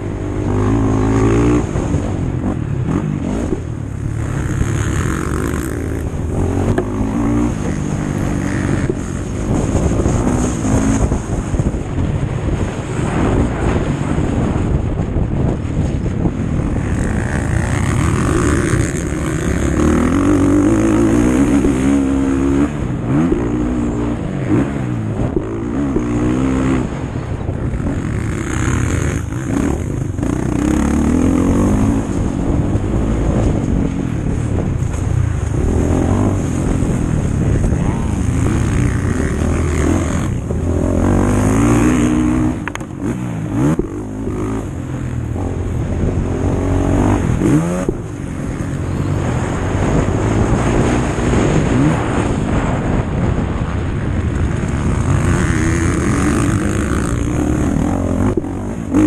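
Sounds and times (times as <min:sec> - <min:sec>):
motocross bike engine revving: 0:00.0 - 0:59.0.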